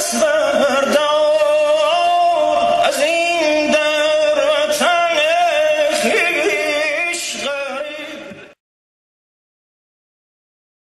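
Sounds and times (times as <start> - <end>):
man singing: 0.0 - 8.6.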